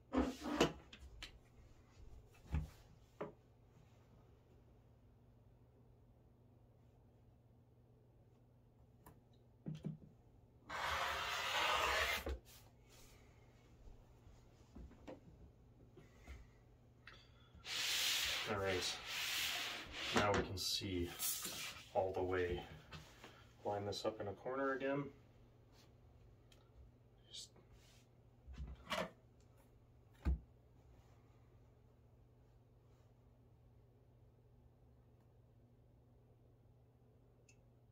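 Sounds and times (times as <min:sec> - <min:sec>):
faint steady hum: 0:12.6 - 0:37.9.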